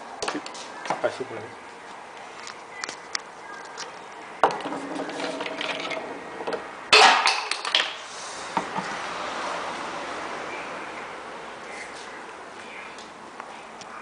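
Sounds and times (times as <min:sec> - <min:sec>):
knocking and scraping: 0:04.4 - 0:07.7.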